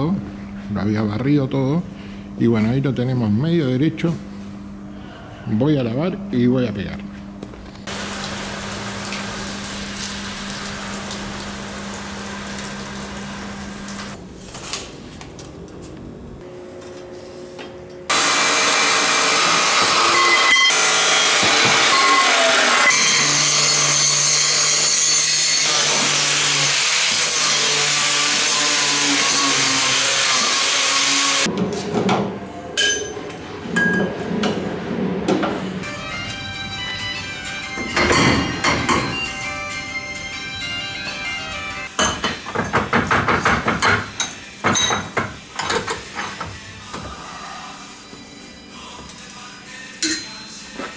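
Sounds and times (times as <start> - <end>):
cut-off saw grinding steel: 18.1 - 31.5.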